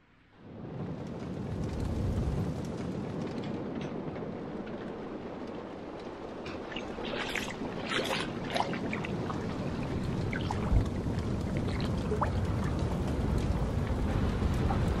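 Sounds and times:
water lapping and splashing: 0:06.2 - 0:15.0.

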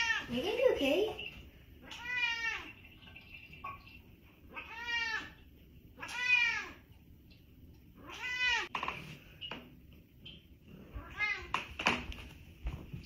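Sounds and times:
cat meowing: 0:01.8 - 0:02.7, 0:04.5 - 0:05.4, 0:06.0 - 0:06.8, 0:08.0 - 0:08.7, 0:11.0 - 0:11.5.

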